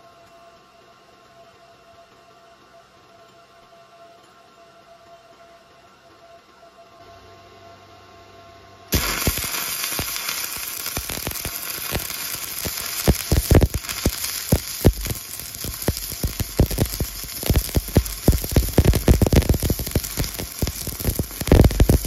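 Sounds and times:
welding arc hissing and popping: 0:08.9 - 0:22.0.

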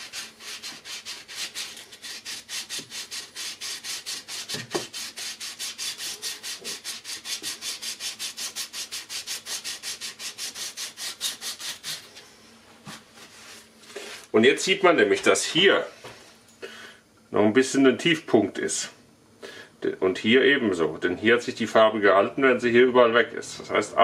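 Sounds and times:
metal rubbed on abrasive surface: 0:00.0 - 0:12.2.

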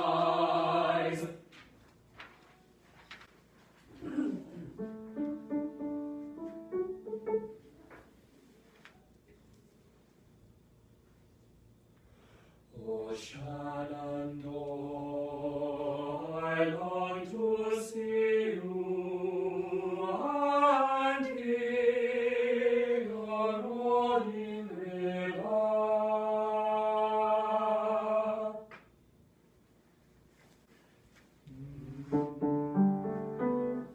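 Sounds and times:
choir singing held chords: 0:00.0 - 0:01.4, 0:12.8 - 0:28.7.

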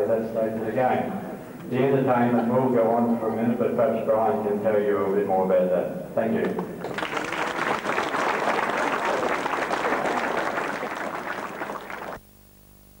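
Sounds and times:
faint steady hum: 0:00.0 - 0:13.0
audience applauding: 0:06.4 - 0:12.2.

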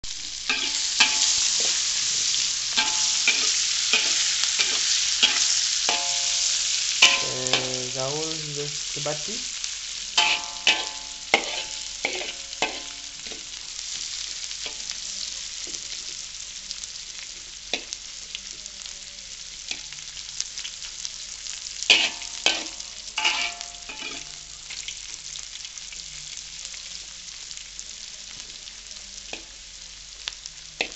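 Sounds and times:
chillies sizzling in hot oil: 0:00.0 - 0:30.9
metal ladle clanking on wok: 0:02.8 - 0:07.8, 0:10.2 - 0:13.4, 0:21.9 - 0:24.3.

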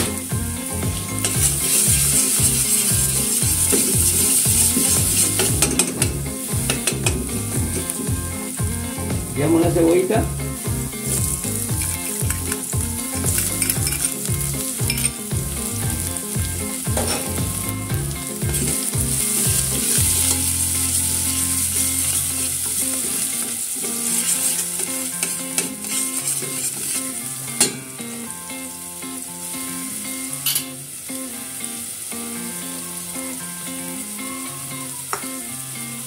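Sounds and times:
onion and garlic sizzling in oil: 0:00.0 - 0:36.0
spoon knocking against pot: 0:05.4 - 0:07.9.

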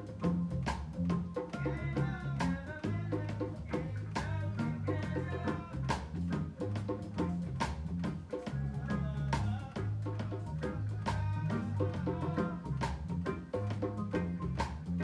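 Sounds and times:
deep bass line: 0:00.0 - 0:15.0
drum kit beat: 0:00.0 - 0:15.0
electric guitar playing: 0:03.8 - 0:15.0.

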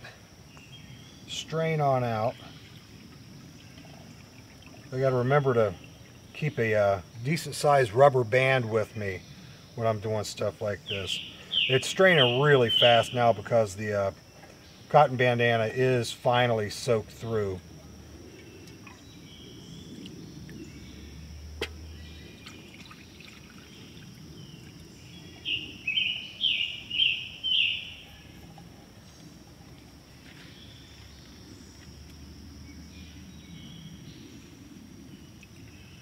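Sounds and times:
water trickling into a pot: 0:02.6 - 0:06.4, 0:21.7 - 0:25.5
bird chirping: 0:10.7 - 0:13.4, 0:18.3 - 0:29.4.

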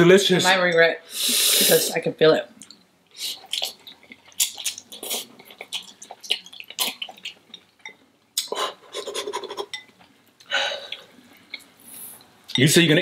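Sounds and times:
chewing with mouth clicks: 0:02.6 - 0:10.0.

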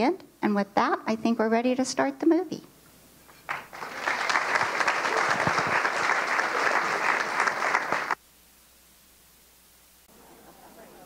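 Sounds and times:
audience applauding: 0:03.5 - 0:08.2.

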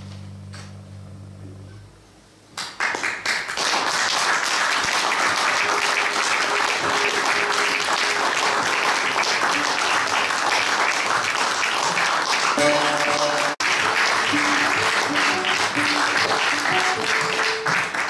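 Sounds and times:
audience applause: 0:02.6 - 0:18.0
low held accompaniment notes: 0:12.6 - 0:18.0.

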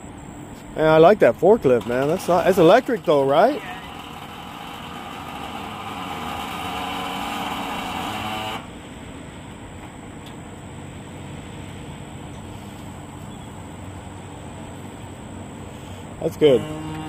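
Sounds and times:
electric forklift motor whining: 0:01.8 - 0:08.8, 0:16.4 - 0:17.0.

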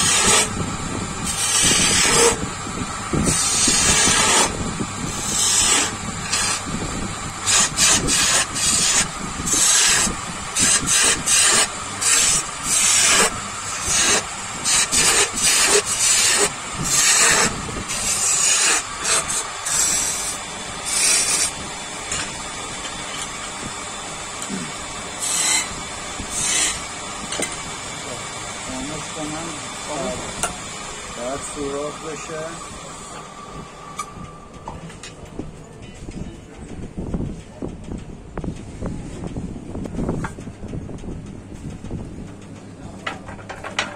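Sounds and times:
hand tool scraping strokes: 0:00.0 - 0:00.6, 0:01.3 - 0:02.4, 0:03.2 - 0:06.6, 0:07.4 - 0:22.2, 0:24.4 - 0:26.9
steady background hum: 0:00.0 - 0:43.9.

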